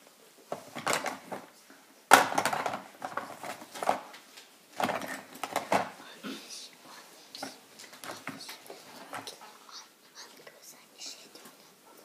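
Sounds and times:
small containers clattering: 0.5s - 1.5s, 2.1s - 6.0s.

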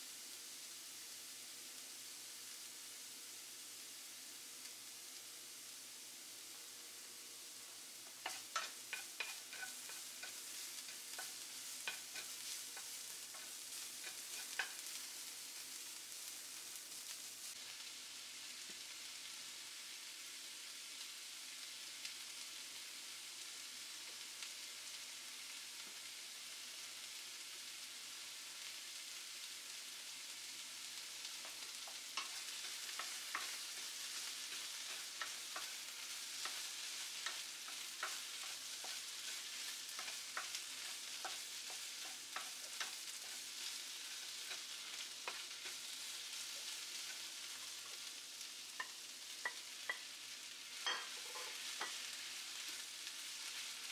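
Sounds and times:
vegetables sizzling in a pan: 0.0s - 53.9s
wooden spatula scraping a pan: 8.1s - 15.3s, 31.3s - 48.1s, 50.7s - 53.9s.

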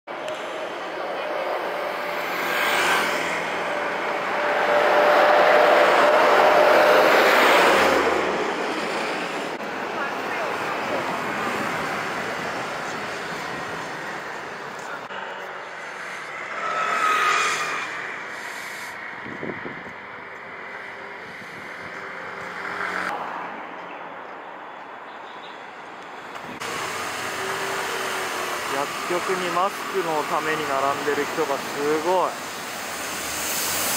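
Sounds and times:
road traffic noise: 0.0s - 33.9s
vehicle passing with whine: 0.1s - 23.3s.

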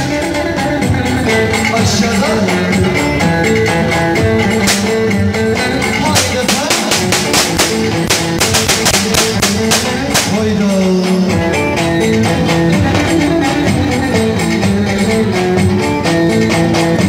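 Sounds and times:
folk melody with sliding notes: 0.0s - 17.0s
bass drum beat: 4.6s - 5.2s, 6.0s - 10.6s.

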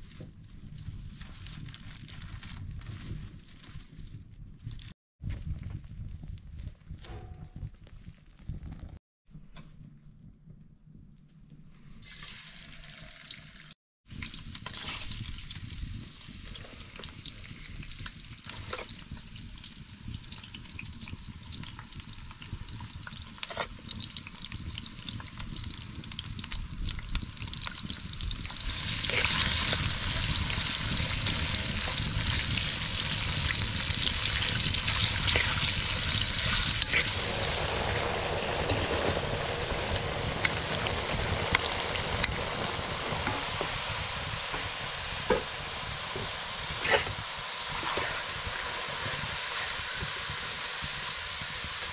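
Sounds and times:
potato strips frying in oil: 12.0s - 51.9s.

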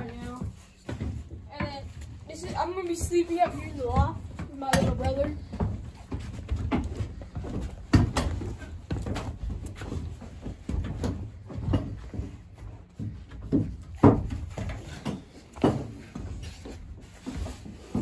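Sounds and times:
footsteps on wooden floorboards: 0.0s - 18.0s.

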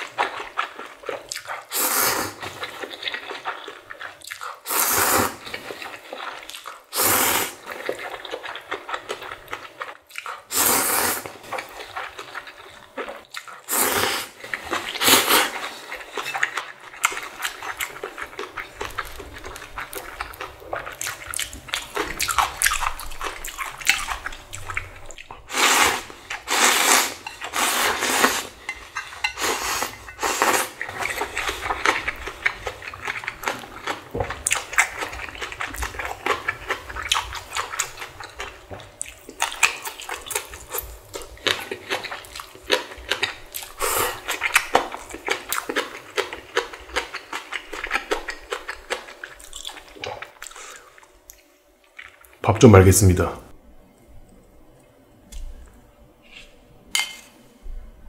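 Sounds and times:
wet chewing: 0.0s - 52.4s
person slurping noodles: 1.7s - 2.8s, 4.7s - 5.5s, 6.9s - 7.7s, 10.5s - 11.8s, 13.6s - 16.0s, 25.5s - 28.6s, 29.3s - 32.6s, 43.7s - 44.4s.

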